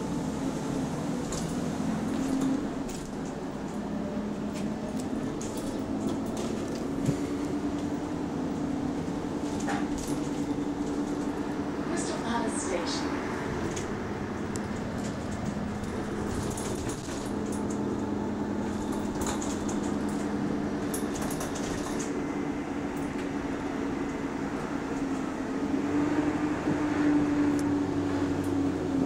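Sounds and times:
bus engine droning: 0.0 - 29.0
light rattles: 9.3 - 11.5, 13.6 - 22.2.

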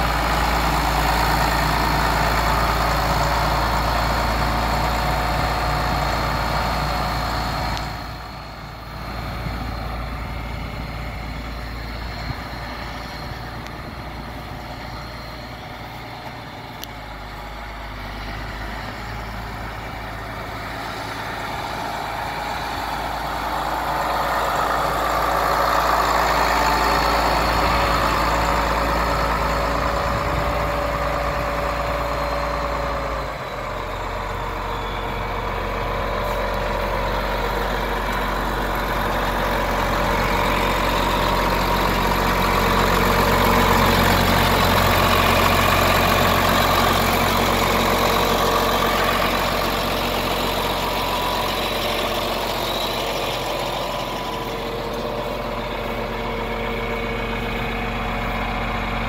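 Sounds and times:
tractor diesel engine running: 0.0 - 59.0
faint whistle: 31.9 - 36.7.

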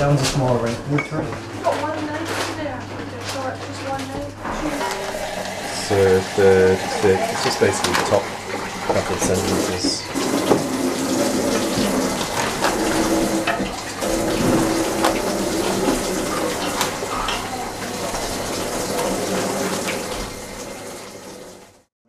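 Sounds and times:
utensils clinking: 0.3 - 20.2
tap running into sink: 4.4 - 21.7.

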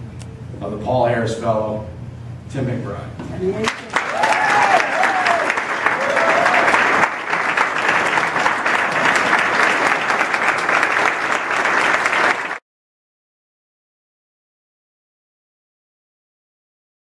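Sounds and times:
audience applause: 3.6 - 12.6.

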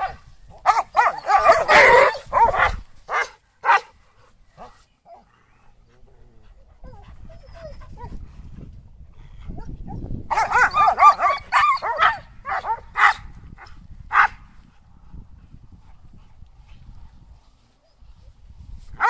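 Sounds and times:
dogs barking and yelping: 0.0 - 3.9, 6.6 - 8.1, 9.6 - 13.2.

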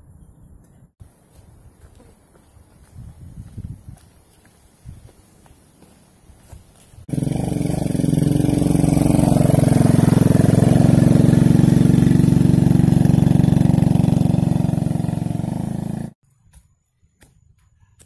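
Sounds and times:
motorcycle engine under load: 7.0 - 16.2.

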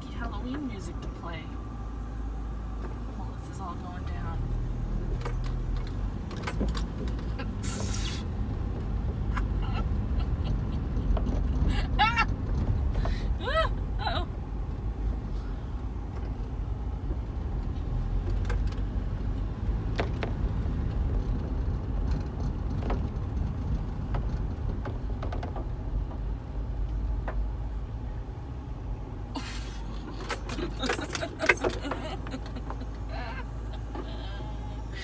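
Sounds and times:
car road and engine rumble: 0.0 - 35.0
sharp rattles and clicks: 19.9 - 27.4, 30.1 - 33.0.

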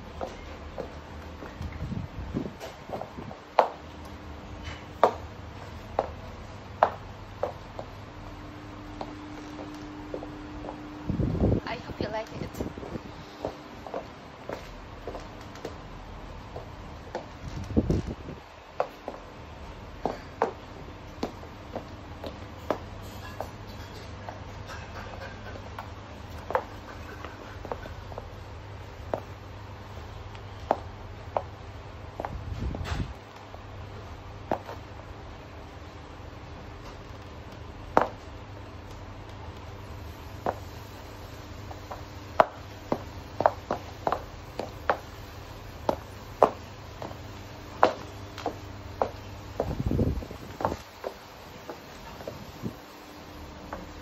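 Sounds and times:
steady low hum: 0.0 - 54.0
high heels clacking on wood floor: 0.1 - 10.9, 11.8 - 32.4, 36.8 - 39.8, 41.6 - 52.8
heels knocking on wooden floor: 41.7 - 52.8.

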